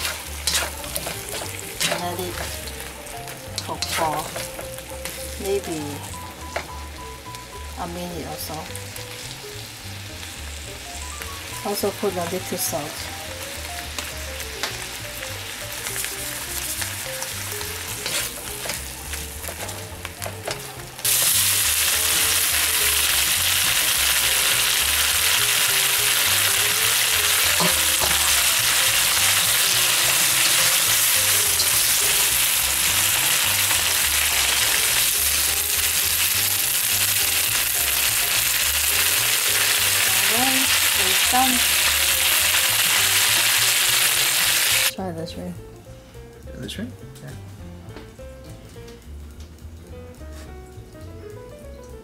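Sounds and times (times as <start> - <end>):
utensil stirring in a wok: 0.0 - 6.7, 15.7 - 44.4
shrimp sizzling in a wok: 0.0 - 45.0.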